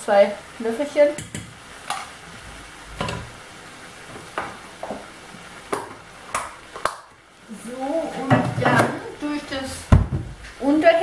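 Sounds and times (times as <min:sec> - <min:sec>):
vegetables sizzling in a pot: 0:00.0 - 0:11.0.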